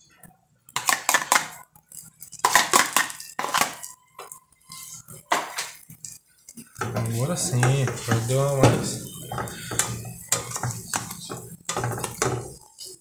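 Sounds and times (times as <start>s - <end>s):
metal utensil clinking on cookware: 6.6s - 12.7s.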